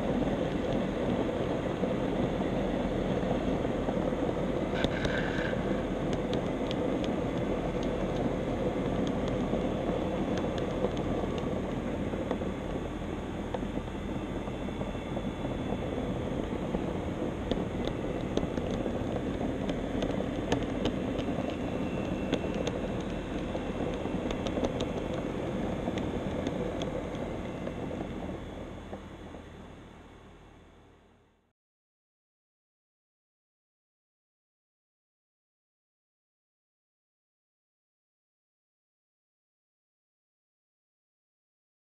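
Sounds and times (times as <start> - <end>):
wheels clicking on rails: 0.0 - 29.4.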